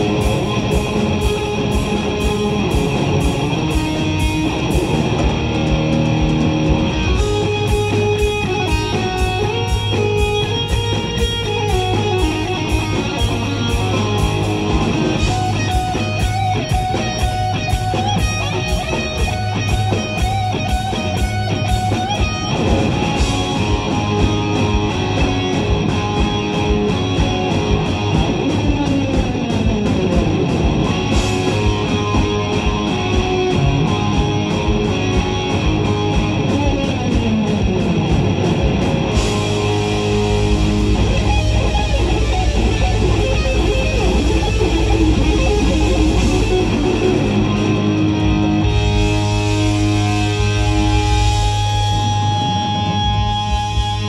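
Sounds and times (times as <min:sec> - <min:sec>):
bass guitar: 0:00.0 - 0:54.0
drums: 0:00.0 - 0:54.0
electric guitar lead: 0:00.0 - 0:54.0
keyboards: 0:00.0 - 0:54.0.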